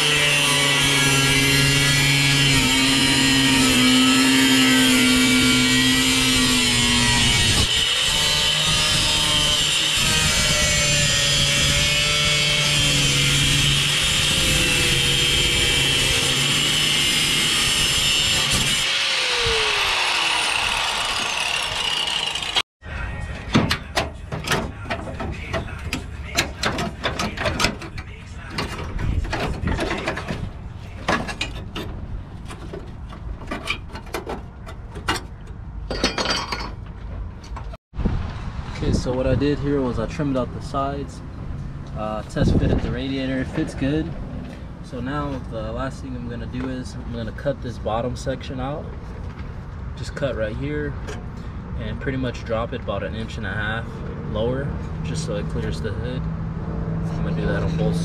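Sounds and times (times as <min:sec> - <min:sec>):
angle grinder cutting metal: 0:00.0 - 0:22.6
metal rattle: 0:23.5 - 0:37.8
metallic clinks and knocks: 0:33.5 - 0:37.7.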